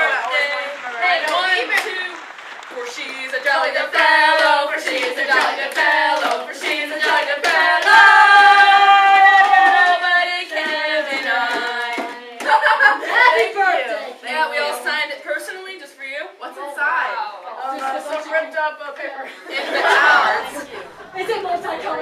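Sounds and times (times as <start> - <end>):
hand claps: 0.0 - 8.1, 9.2 - 12.6
voices singing together: 0.0 - 15.0, 19.3 - 22.0.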